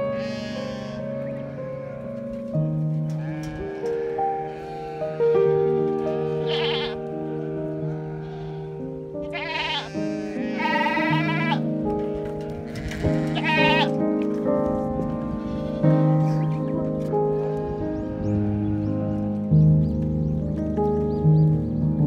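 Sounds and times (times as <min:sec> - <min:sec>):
quavering bleats: 0:00.0 - 0:02.4, 0:03.0 - 0:14.0, 0:17.4 - 0:19.3
background music: 0:00.0 - 0:22.0.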